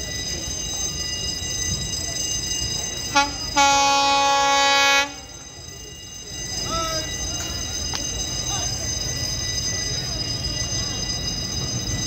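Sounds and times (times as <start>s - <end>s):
train horn: 3.2s - 5.3s.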